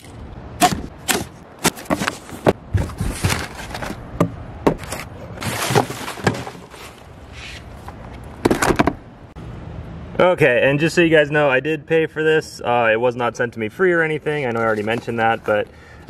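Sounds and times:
boxes knocking: 0:00.6 - 0:06.7
packing paper rustling: 0:04.8 - 0:07.6.

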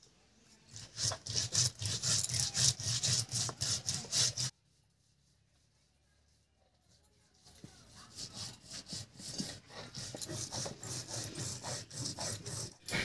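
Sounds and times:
stone roller grinding on stone: 0:00.7 - 0:04.5, 0:07.9 - 0:13.0.

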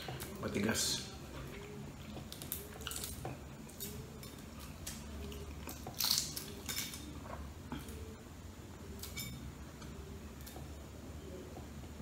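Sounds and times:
low steady hum: 0:00.0 - 0:12.0
eggshell cracking: 0:02.1 - 0:07.1.

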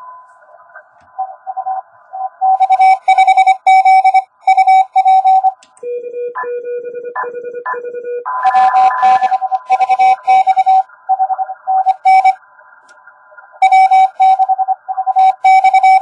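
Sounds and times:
morse code tones: 0:02.2 - 0:12.4, 0:13.6 - 0:16.0.

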